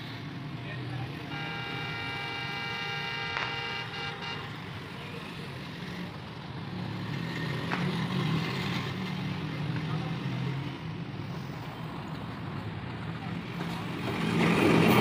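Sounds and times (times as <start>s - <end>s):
locomotive horn blast: 1.3s - 4.8s.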